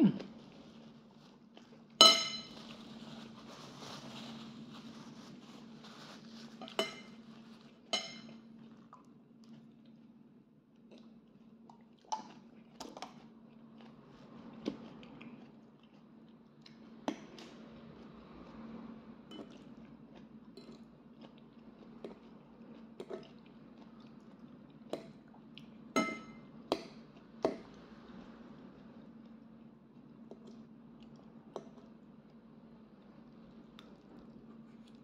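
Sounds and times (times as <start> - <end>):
soft chewing: 0.0 - 35.0
fork clinking on ceramic bowl: 2.0 - 2.6, 6.6 - 7.2, 7.9 - 8.4, 26.0 - 26.4.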